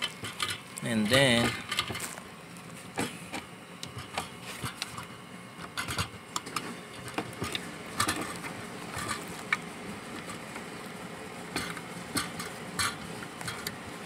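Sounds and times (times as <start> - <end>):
gloved hands rustling wires: 0.0 - 14.0.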